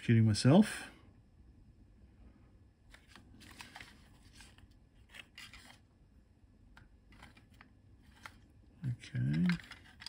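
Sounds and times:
fingers handling circuit board: 6.8s - 8.5s, 9.1s - 10.0s.

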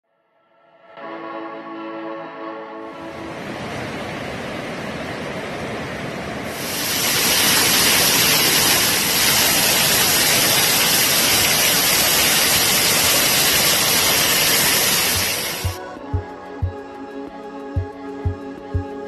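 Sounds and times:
rushing river water: 2.9s - 15.8s
waterfall hissing: 6.4s - 15.8s.

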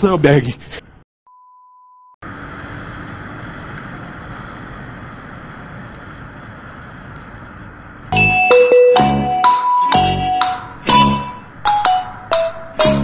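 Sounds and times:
car road and wind noise: 2.2s - 8.2s, 10.7s - 12.8s.

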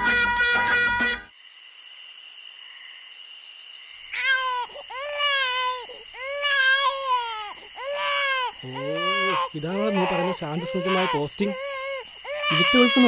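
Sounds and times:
infant crying: 4.2s - 13.0s.

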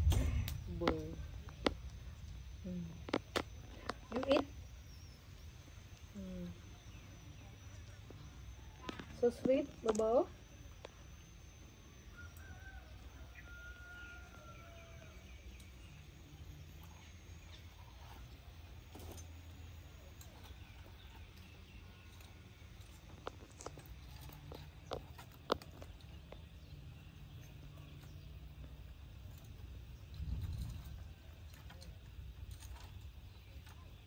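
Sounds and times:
low steady rumble: 0.0s - 34.0s.

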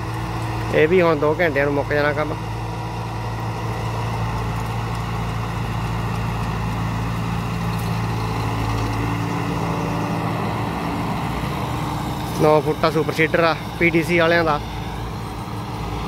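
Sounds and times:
rotor churning soil: 0.0s - 16.0s
tractor engine running under load: 0.0s - 16.0s.

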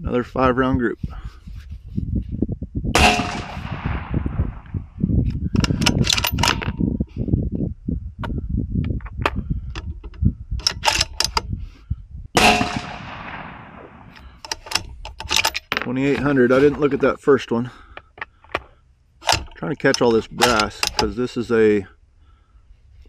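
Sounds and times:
rifle shots echoing: 3.0s - 4.7s, 12.4s - 14.2s
rifle reloading clicks and clinks: 5.3s - 6.8s, 10.6s - 11.5s, 14.1s - 16.8s, 19.2s - 21.2s.

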